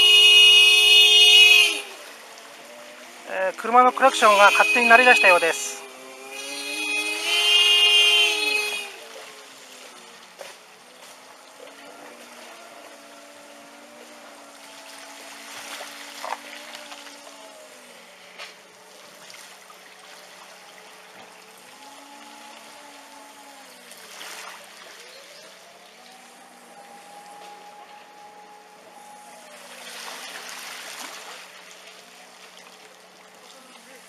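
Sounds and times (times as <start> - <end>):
floodwater running and trickling: 1.6 - 4.3, 8.7 - 34.0
wailing tone: 3.3 - 8.9, 25.3 - 29.8.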